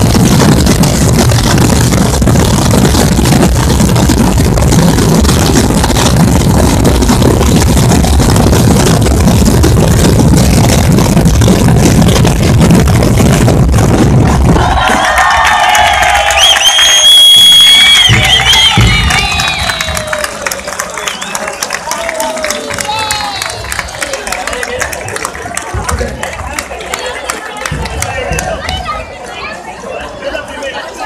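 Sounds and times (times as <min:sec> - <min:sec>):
bass drums rumbling: 0:00.0 - 0:17.0, 0:17.6 - 0:20.6
snare drums rolling: 0:00.0 - 0:21.5.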